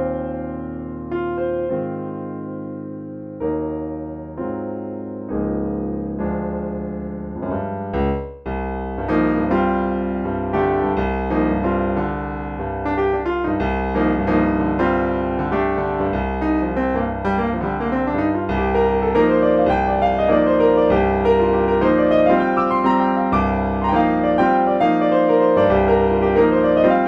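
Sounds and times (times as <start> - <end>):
digital piano playing chords: 0.0 - 27.0.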